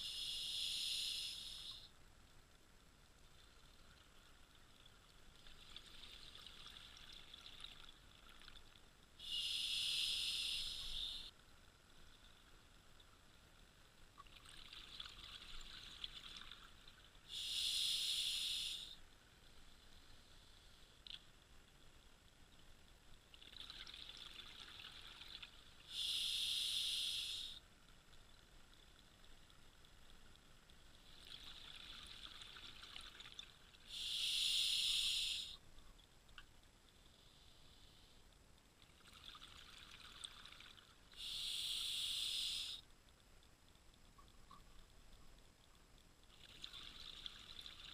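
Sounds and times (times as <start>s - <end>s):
regulator inhalation hiss: 0.0s - 1.9s, 9.2s - 11.3s, 17.3s - 19.0s, 25.9s - 27.6s, 33.9s - 35.6s, 41.2s - 42.8s.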